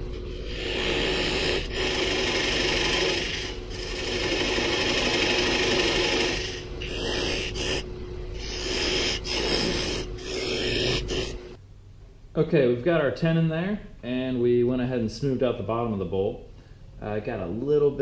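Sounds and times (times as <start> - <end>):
lathe motor hum: 0.0 - 11.6
gouge cutting spinning wood: 0.4 - 7.8, 8.4 - 11.5.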